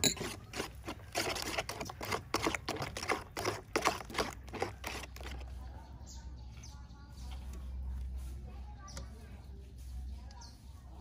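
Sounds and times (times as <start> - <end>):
spoon stirring wet mixture in bowl: 0.0 - 8.2.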